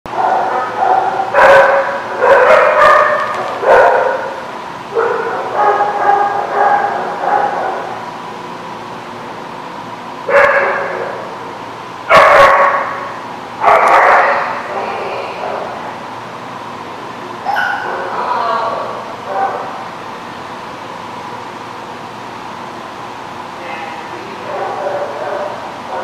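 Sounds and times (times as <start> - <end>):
small dogs barking and yipping: 0.1 - 4.4, 5.0 - 7.9, 12.1 - 13.0, 13.6 - 14.6, 17.4 - 18.2.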